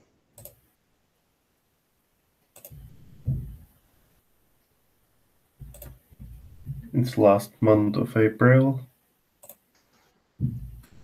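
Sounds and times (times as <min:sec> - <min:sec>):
mouse or keyboard clicks: 0:02.6 - 0:03.2, 0:05.6 - 0:06.0.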